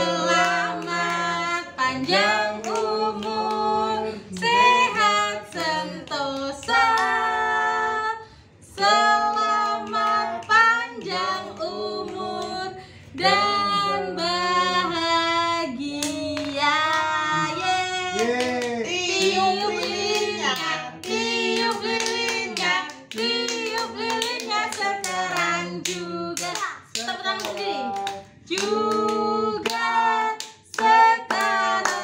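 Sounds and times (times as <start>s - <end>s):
hands clapping along: 0.0s - 3.7s, 15.9s - 32.0s
family singing together: 0.0s - 32.0s.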